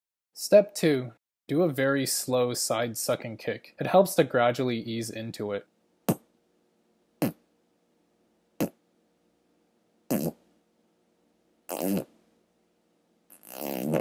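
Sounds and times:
beatbox mouth pops: 0:06.1 - 0:06.3, 0:07.2 - 0:07.4, 0:10.1 - 0:10.4, 0:11.7 - 0:12.1, 0:13.3 - 0:14.0
lip buzz: 0:07.2 - 0:07.4, 0:08.6 - 0:08.8, 0:10.1 - 0:10.4, 0:11.7 - 0:12.1, 0:13.3 - 0:14.0.

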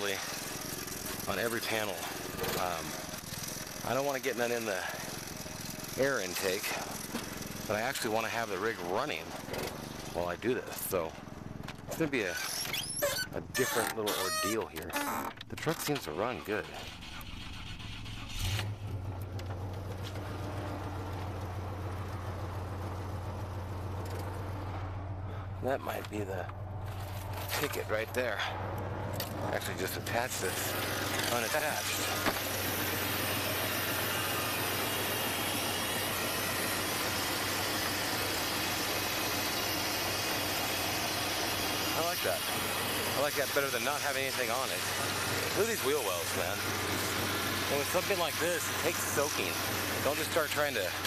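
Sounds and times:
truck engine idling: 0:00.0 - 0:51.0
steady hiss: 0:29.6 - 0:51.0.

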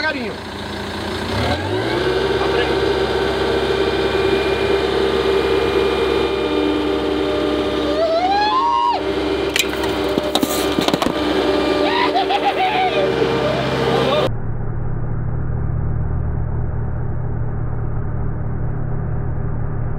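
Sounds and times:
road roller diesel engine: 0:00.0 - 0:15.5
cans cracking and popping: 0:09.5 - 0:11.2.

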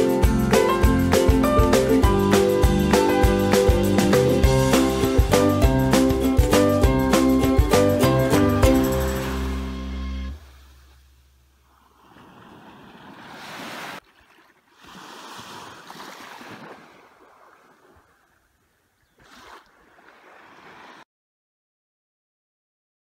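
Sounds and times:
waves washing onto sand: 0:12.1 - 0:14.0.

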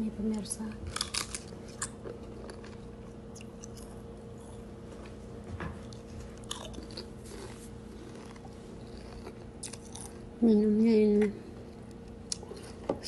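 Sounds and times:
faint steady hum: 0:00.0 - 0:13.0
potato chips crunching: 0:00.9 - 0:04.6, 0:05.9 - 0:10.3.

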